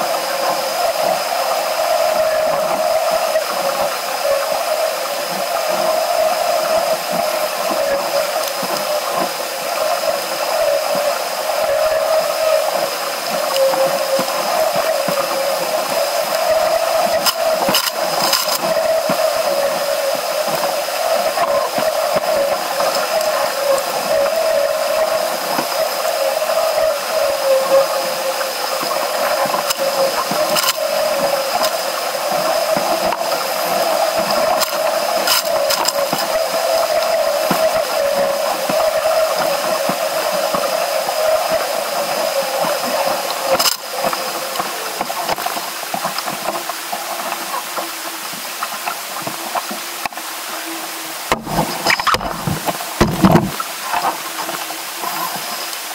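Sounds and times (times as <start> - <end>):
water rushing: 0.0 - 55.9
wind: 0.0 - 55.9
knocks or splashes: 51.3 - 54.1.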